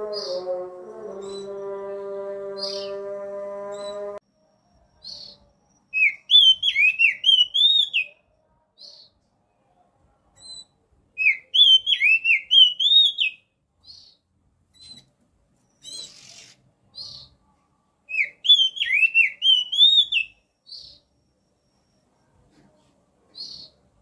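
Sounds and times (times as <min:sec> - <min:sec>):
bird singing whistled notes: 0:01.2 - 0:01.6, 0:04.6 - 0:09.1, 0:10.4 - 0:14.2, 0:18.1 - 0:22.3.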